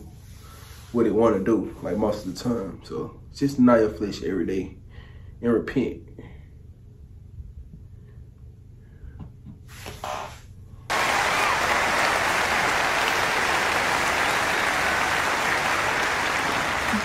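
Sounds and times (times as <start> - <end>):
large crowd applauding: 10.9 - 17.0.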